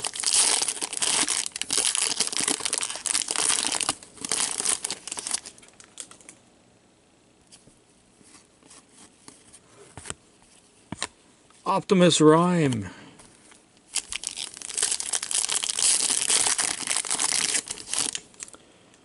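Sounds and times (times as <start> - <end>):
wrapper tearing and crinkling: 0.0 - 6.3, 13.9 - 18.6.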